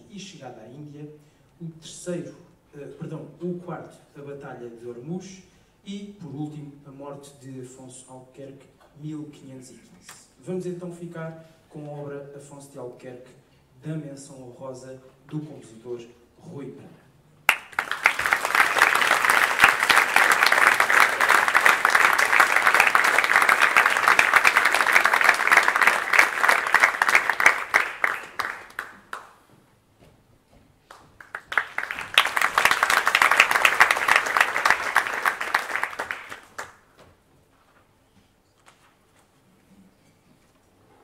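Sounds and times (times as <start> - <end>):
audience applauding: 17.5 - 29.3, 31.2 - 36.9.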